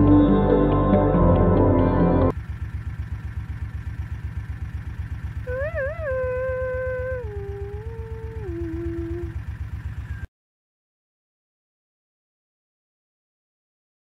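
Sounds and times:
engine running with low throb: 0.0 - 10.3
long wavering howl: 5.4 - 9.4.

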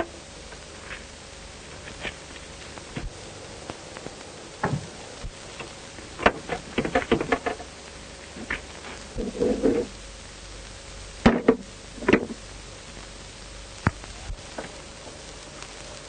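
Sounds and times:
old film soundtrack hiss: 0.0 - 16.0
scattered knocks and clicks: 6.2 - 7.7.

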